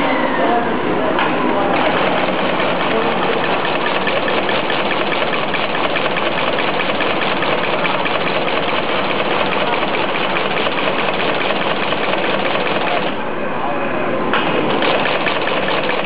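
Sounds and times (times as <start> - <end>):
steady machine drone: 1.6 - 16.0
tufting head rapid clatter: 1.8 - 13.2, 14.7 - 16.0.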